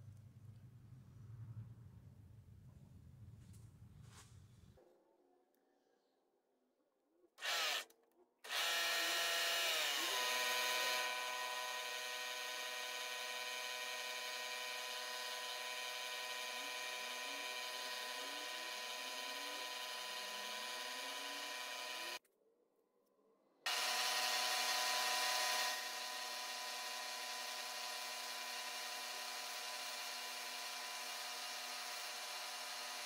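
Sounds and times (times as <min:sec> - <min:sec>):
milling machine spindle whine: 0:08.5 - 0:22.2.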